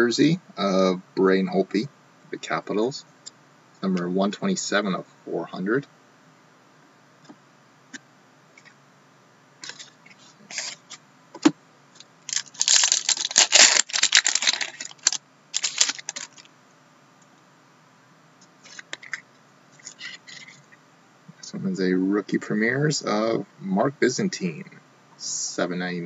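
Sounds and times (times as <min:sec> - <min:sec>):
cards being handled: 0:12.3 - 0:16.5
foil wrapper crinkling and tearing: 0:12.3 - 0:16.5.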